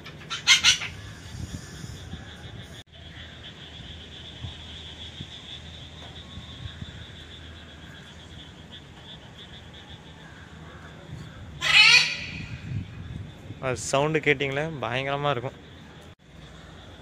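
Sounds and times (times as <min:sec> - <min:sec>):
macaw scream: 0:00.3 - 0:01.8, 0:11.6 - 0:12.7.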